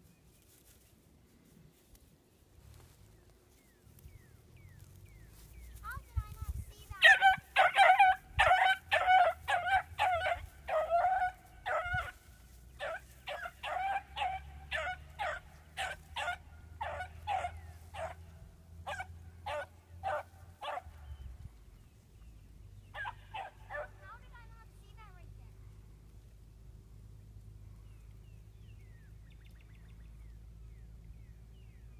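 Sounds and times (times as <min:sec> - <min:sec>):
dog barking and yelping: 0:07.0 - 0:12.2, 0:12.8 - 0:21.0, 0:22.9 - 0:24.4.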